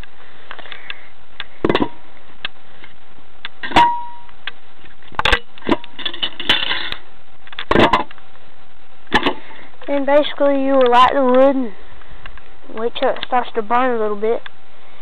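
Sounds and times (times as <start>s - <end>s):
short metallic ring: 3.6s - 4.3s.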